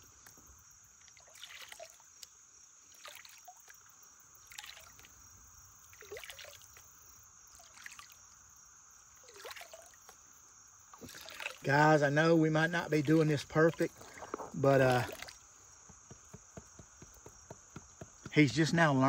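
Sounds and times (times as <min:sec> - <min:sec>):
water sloshing in gold pan: 0:01.0 - 0:06.9, 0:07.5 - 0:08.3, 0:09.2 - 0:10.2, 0:10.9 - 0:15.6.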